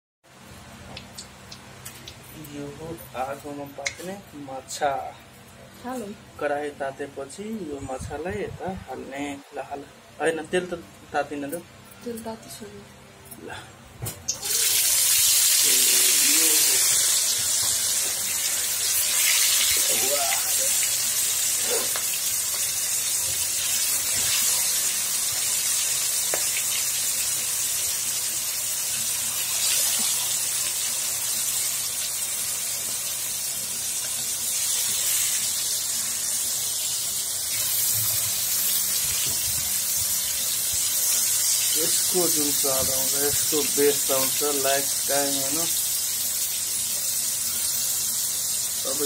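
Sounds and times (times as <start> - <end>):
fish sizzling in hot oil: 14.3 - 49.0.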